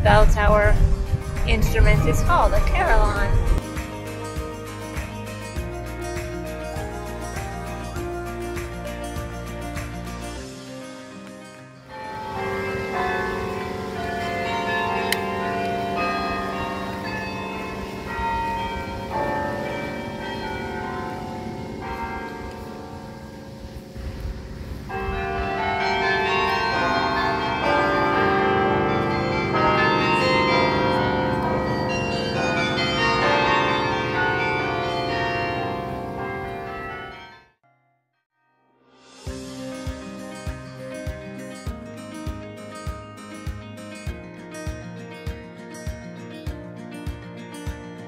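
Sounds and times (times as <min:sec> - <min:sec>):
carillon bells playing tune: 0:11.9 - 0:23.2, 0:24.9 - 0:37.4.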